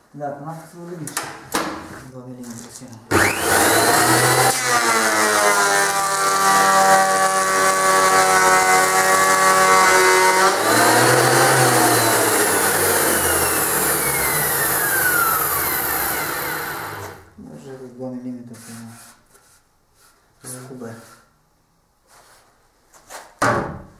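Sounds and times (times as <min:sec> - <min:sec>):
thickness planer running: 0:03.1 - 0:17.3
motor whine winding down: 0:10.6 - 0:17.3.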